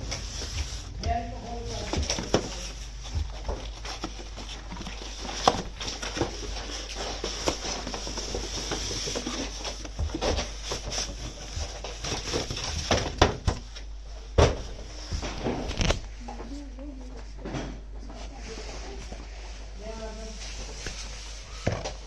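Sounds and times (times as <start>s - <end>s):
cardboard rustling: 0.0s - 13.8s.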